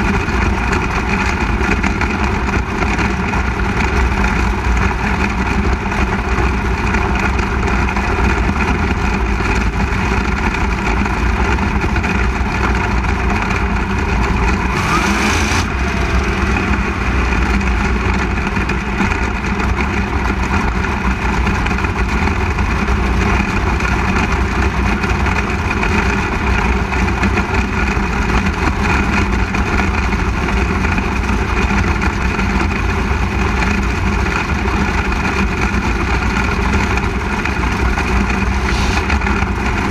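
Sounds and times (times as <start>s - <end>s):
other race cars: 0.0s - 39.9s
race car engine running: 0.0s - 39.9s
brief rushing hiss: 38.4s - 39.3s.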